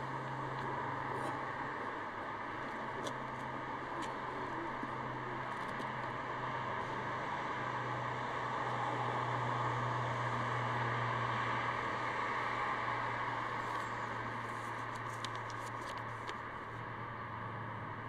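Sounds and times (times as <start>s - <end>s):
paper note crackling open: 13.6s - 16.4s.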